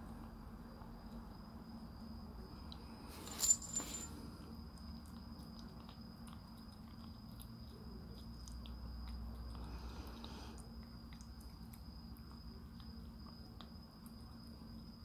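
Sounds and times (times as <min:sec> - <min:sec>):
kitten licking and chewing food: 0:04.2 - 0:15.0
small faint wet clicks: 0:04.7 - 0:15.0.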